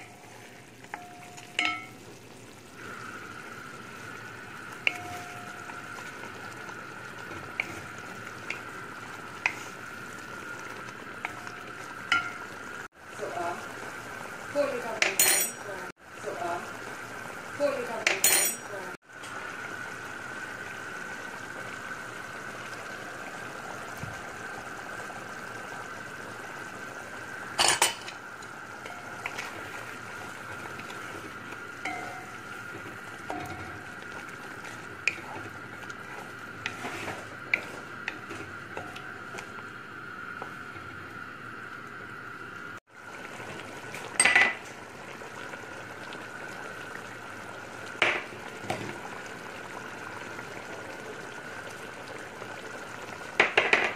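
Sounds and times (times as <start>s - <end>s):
wooden spoon stirring in pot: 0.0s - 13.8s, 28.1s - 41.0s
spoon clinking against metal pot: 0.9s - 2.0s, 15.0s - 15.6s, 18.1s - 18.7s.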